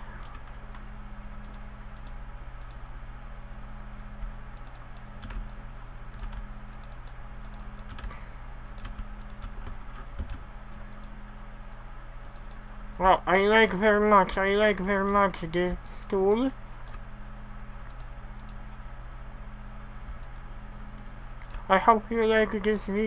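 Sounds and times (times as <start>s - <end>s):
low electrical hum: 0.0s - 23.0s
keyboard keys clicking: 0.2s - 2.8s, 3.9s - 11.2s, 17.9s - 18.8s.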